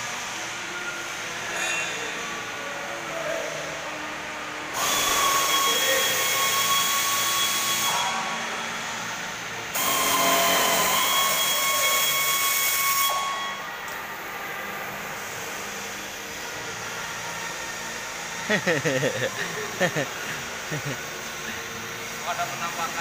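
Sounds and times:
power tool whining: 4.7s - 13.7s.

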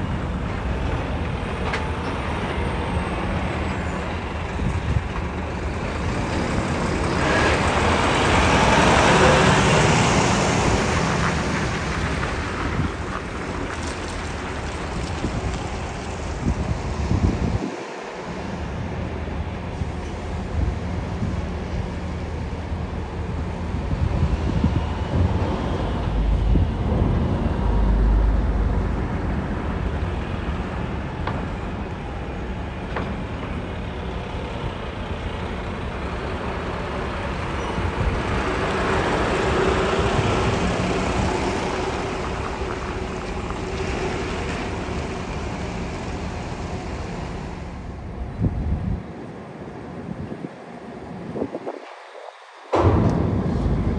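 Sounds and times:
truck diesel engines: 0.0s - 53.9s
deep low rumble: 24.0s - 32.1s, 52.7s - 53.9s
tyres on ramp: 29.0s - 48.3s
sharp knocks: 52.7s - 53.9s.

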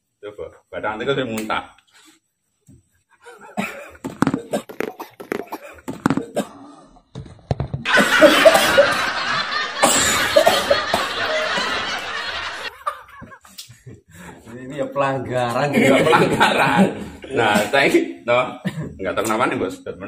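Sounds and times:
men laughing: 7.8s - 14.5s, 15.7s - 17.7s.

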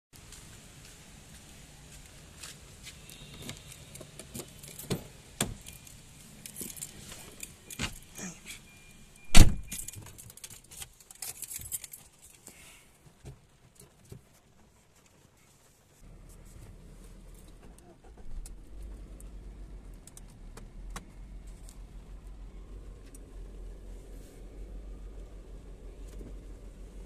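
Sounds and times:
car keys jangling: 3.2s - 8.7s, 9.3s - 12.5s
car door shutting: 3.3s - 5.7s, 9.3s - 9.9s.

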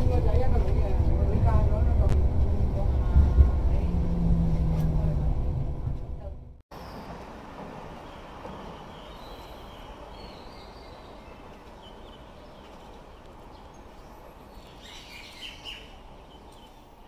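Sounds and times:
outdoor background noise: 0.0s - 17.0s
small birds chirping: 8.0s - 17.0s.

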